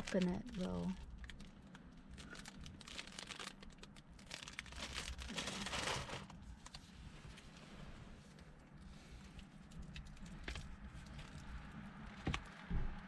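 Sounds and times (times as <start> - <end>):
plastic wrapper crinkling: 0.0 - 7.4.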